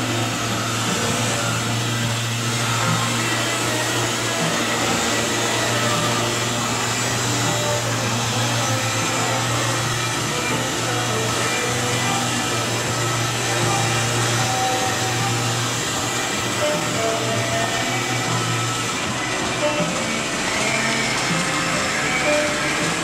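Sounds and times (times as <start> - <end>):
pneumatic sander hissing: 0.0 - 23.0.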